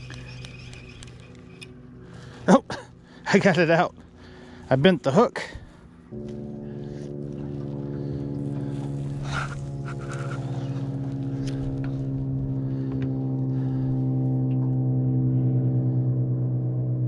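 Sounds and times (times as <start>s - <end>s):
electric motor humming: 6.1s - 13.9s.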